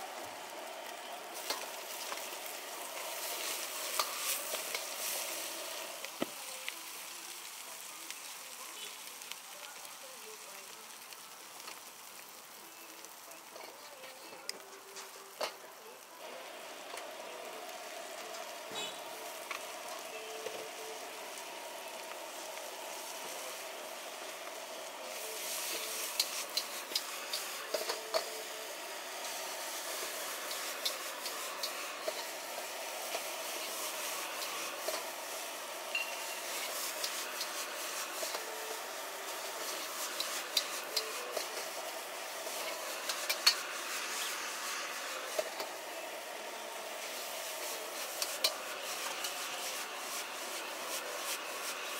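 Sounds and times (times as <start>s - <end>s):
noodles sizzling in a wok: 0.0s - 51.9s
metal utensils scraping wok: 1.4s - 6.0s, 17.8s - 46.0s, 47.0s - 51.9s.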